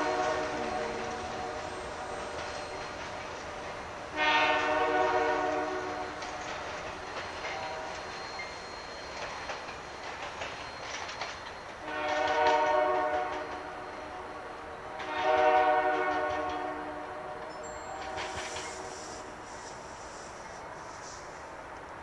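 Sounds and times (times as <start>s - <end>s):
locomotive horn blasts: 0.0s - 1.7s, 4.1s - 6.2s, 7.5s - 8.2s, 11.8s - 19.3s
train rumbling: 0.0s - 22.0s
wheels clicking over rails: 5.9s - 13.7s.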